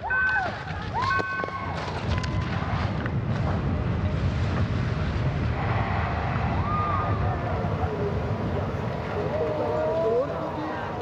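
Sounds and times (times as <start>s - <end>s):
skis rushing on icy snow: 0.0s - 6.2s
wind: 0.0s - 11.0s.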